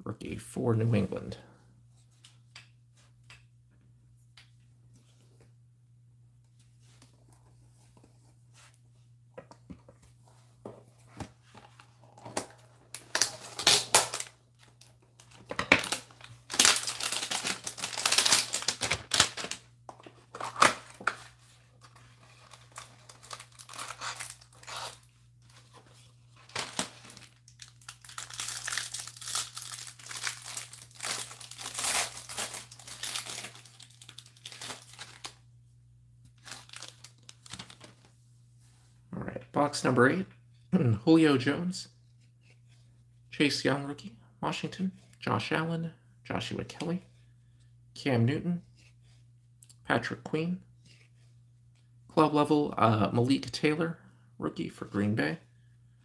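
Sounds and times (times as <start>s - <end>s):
plastic wrapper crinkling: 12.9s - 19.7s, 22.3s - 25.0s, 26.4s - 35.4s, 36.4s - 38.1s.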